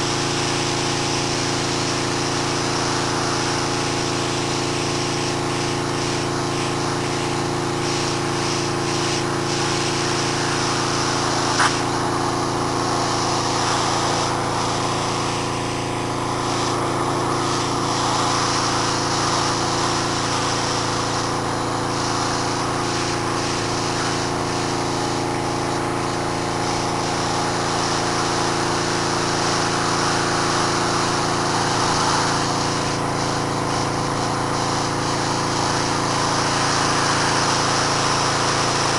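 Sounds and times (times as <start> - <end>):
pressure washer spraying concrete: 0.0 - 38.9
sharp click: 11.6 - 11.9.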